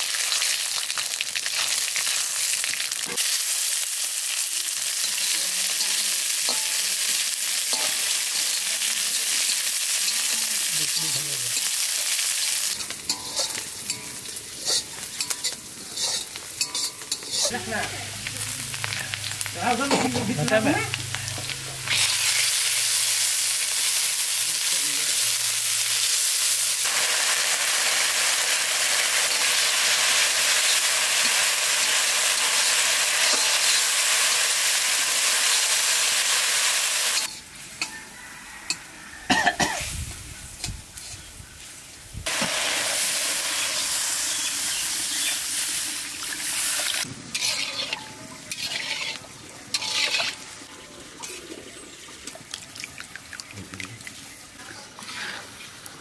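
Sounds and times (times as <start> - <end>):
water hissing in hot pan: 0.0 - 37.4, 42.2 - 51.8
spices sizzling in hot oil: 0.0 - 52.4, 54.1 - 56.0
metal spatula scraping a pan: 12.7 - 17.6, 47.3 - 50.6, 54.9 - 55.7.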